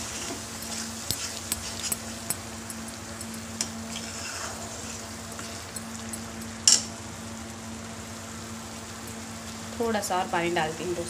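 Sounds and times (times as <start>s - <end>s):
paste sizzling in oil: 0.0s - 6.6s
spatula stirring in pan: 0.0s - 6.6s.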